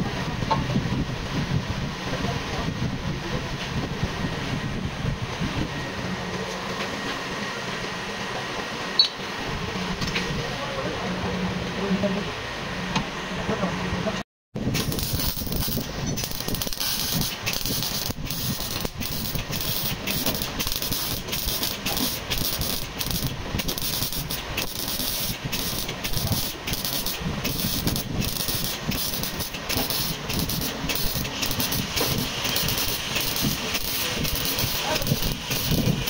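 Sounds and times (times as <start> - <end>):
arc welding crackling hiss: 14.6 - 36.0.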